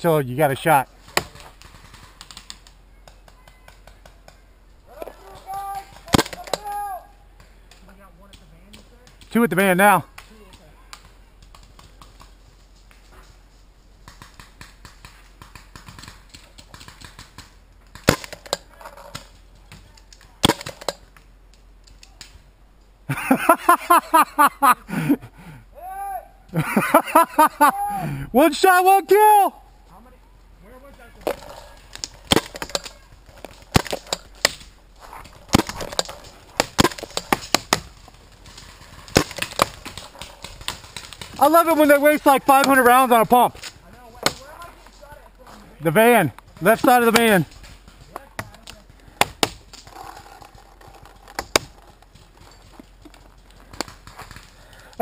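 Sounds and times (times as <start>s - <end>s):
paintballs striking wooden barricade: 5.0s - 7.8s, 14.0s - 21.2s, 30.9s - 45.6s, 46.3s - 54.8s.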